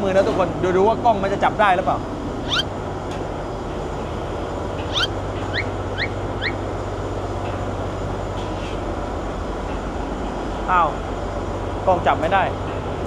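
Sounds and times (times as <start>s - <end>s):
boat engine drone: 1.8s - 8.3s
short rising chirps: 2.4s - 2.7s, 4.8s - 6.6s.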